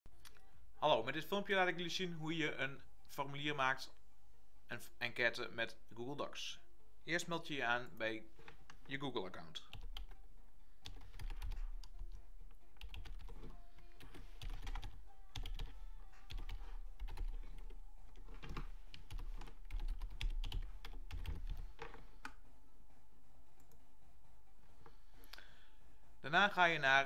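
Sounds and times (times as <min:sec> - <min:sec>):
typing on computer keyboard: 0:09.7 - 0:10.2, 0:10.8 - 0:12.2, 0:12.8 - 0:22.4.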